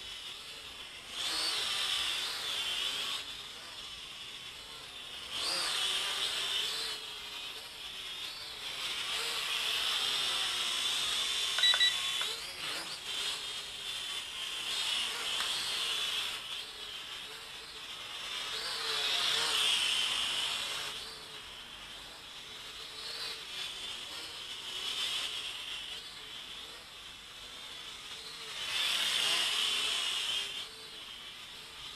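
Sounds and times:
quadcopter propellers whining: 0.0s - 31.9s
electronic double beep: 11.6s - 12.0s.

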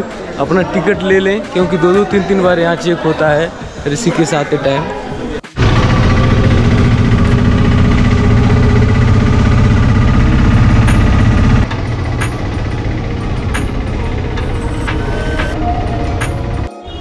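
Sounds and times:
three-wheeler engine running: 5.6s - 16.7s.

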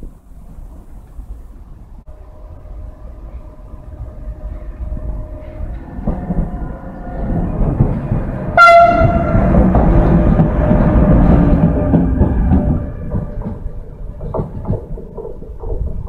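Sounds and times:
electric locomotive rumbling and humming: 0.0s - 16.0s
locomotive horn blast: 8.4s - 10.2s.

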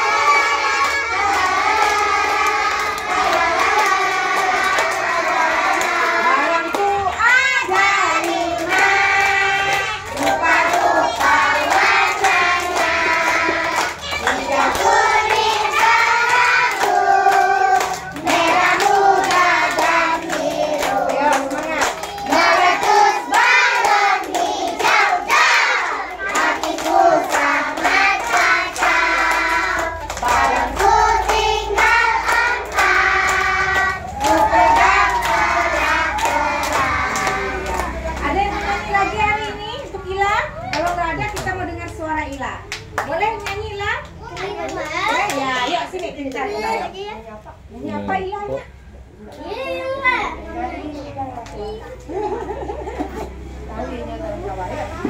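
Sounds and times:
hands clapping in rhythm: 0.0s - 38.8s, 40.6s - 46.4s
children singing: 0.0s - 39.2s.

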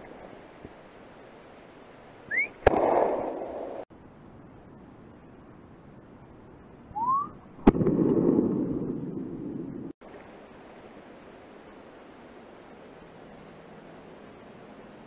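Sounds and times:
short rising whistle: 2.3s - 2.6s, 7.0s - 7.4s
rifle shot echoing: 2.6s - 3.8s, 7.6s - 9.0s.

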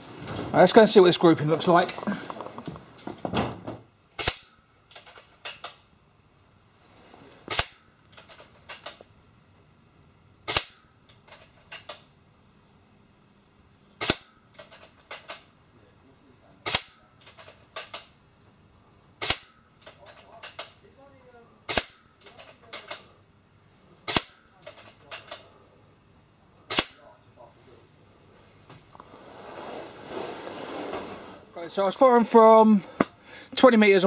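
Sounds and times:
air rifle shots cracking: 4.2s - 4.6s, 7.5s - 7.9s, 10.5s - 10.9s, 14.0s - 14.4s, 16.6s - 17.1s, 19.2s - 19.6s, 21.7s - 22.1s, 24.0s - 24.4s, 26.7s - 27.0s.

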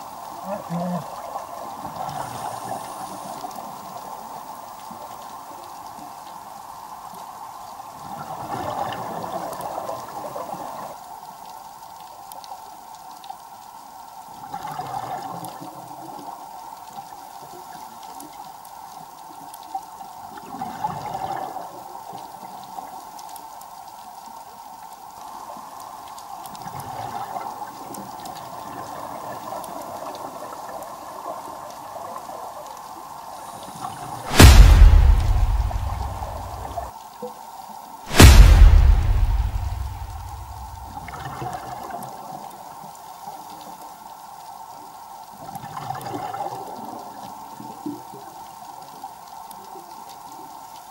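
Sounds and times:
steady hum: 34.3s - 36.9s.

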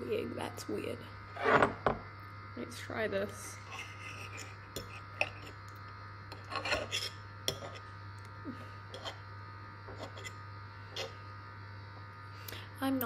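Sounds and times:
knife and fork scraping a plate: 3.6s - 5.6s, 6.3s - 7.9s, 8.9s - 9.3s, 9.9s - 11.2s.

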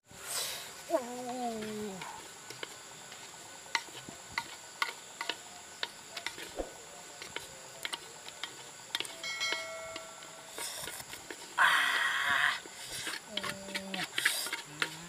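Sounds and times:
insects droning: 0.0s - 15.0s
spatula scraping cooking pot: 12.8s - 15.0s.

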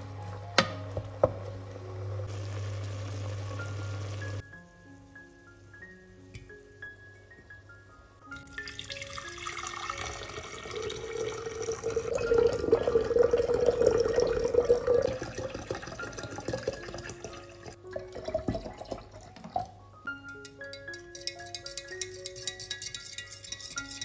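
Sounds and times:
water drips: 8.4s - 19.8s
water pouring into a jug: 8.4s - 19.8s.

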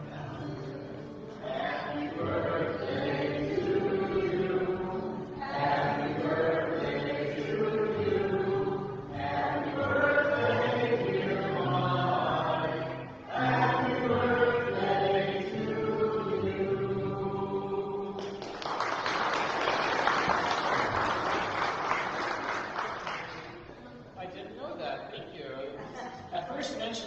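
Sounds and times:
group singing a hymn: 0.0s - 18.6s
applause: 18.2s - 23.6s.

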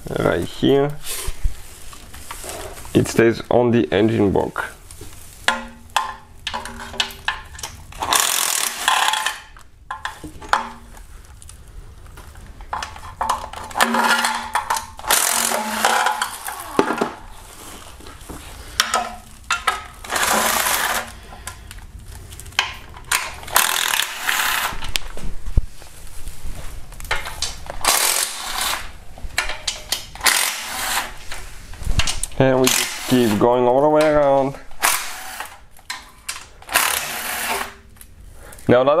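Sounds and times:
power ratchet spinning bolts: 8.0s - 9.4s, 15.0s - 16.7s, 20.0s - 21.1s, 23.1s - 24.8s, 27.8s - 28.8s, 30.2s - 31.1s, 32.6s - 33.4s, 34.8s - 35.6s, 36.7s - 37.7s.

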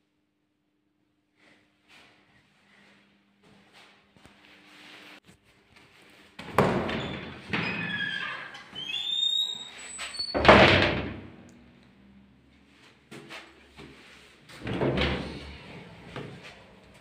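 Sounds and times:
heavy door thud: 6.4s - 8.2s, 10.3s - 11.4s
door banging shut: 6.4s - 8.6s, 10.3s - 11.4s
door hinges squeaking: 6.6s - 11.1s.

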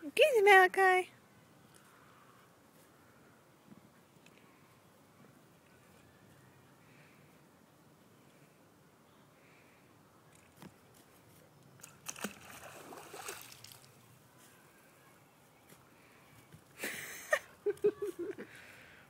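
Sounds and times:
splashy water spray hissing: 12.1s - 14.0s.

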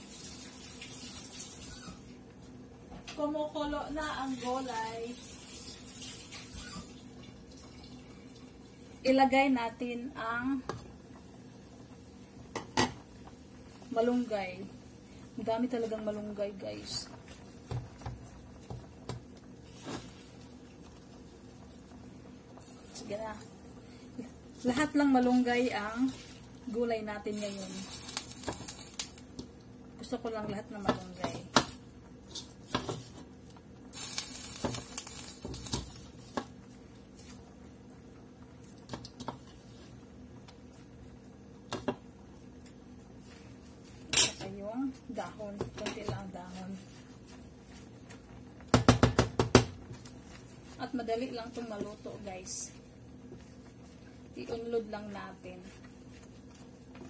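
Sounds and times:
wooden spoon stirring in a pot: 3.2s - 33.8s, 34.6s - 57.0s
spoon knocking against pot: 48.7s - 49.8s.

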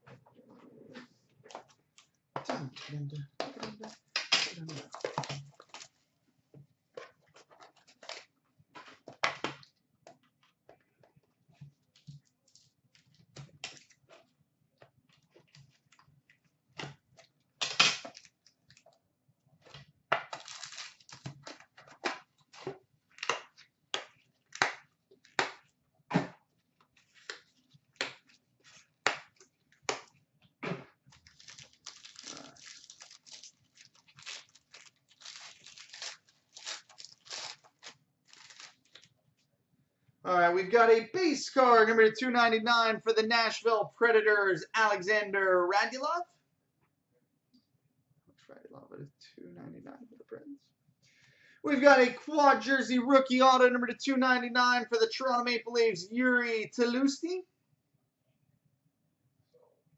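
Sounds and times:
cards snapping and sliding: 17.6s - 18.2s
foil wrapper crinkling and tearing: 20.3s - 21.6s, 31.1s - 39.1s.

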